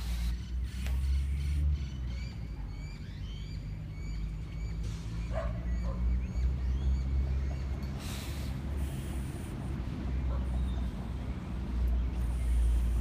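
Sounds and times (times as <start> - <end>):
birds chirping: 0.0 - 13.0
dog barking: 5.3 - 6.1, 10.3 - 10.6.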